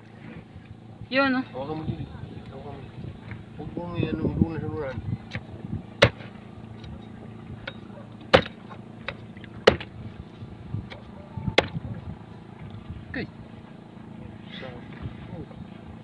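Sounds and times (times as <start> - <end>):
low hum: 0.0 - 16.0
heavy blade chopping on wooden board: 6.0 - 6.3, 7.7 - 9.9, 11.6 - 11.8.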